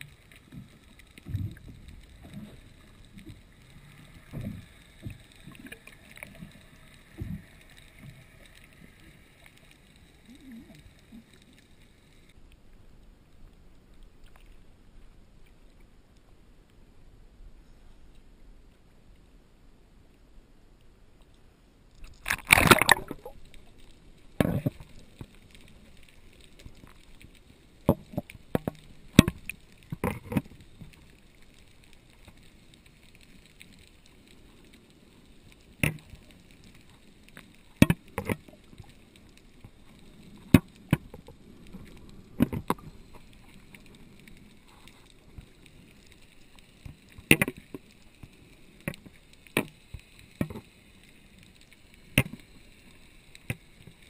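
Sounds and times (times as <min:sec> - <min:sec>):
muffled underwater sound: 0:00.0 - 0:16.6
splashing rush into water: 0:22.2 - 0:23.5.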